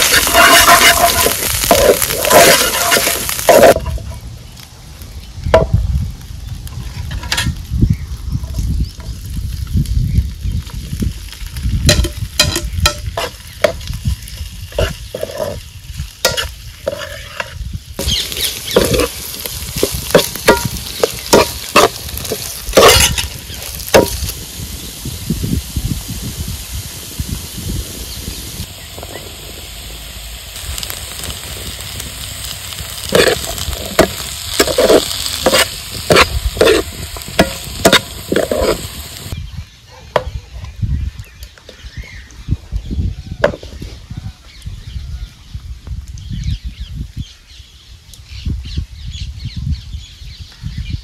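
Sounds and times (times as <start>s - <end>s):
spoon scraping against pan: 0.0s - 4.0s, 14.8s - 15.6s, 16.2s - 24.3s, 33.0s - 39.4s
food sizzling in hot oil: 0.0s - 4.2s, 5.5s - 39.4s.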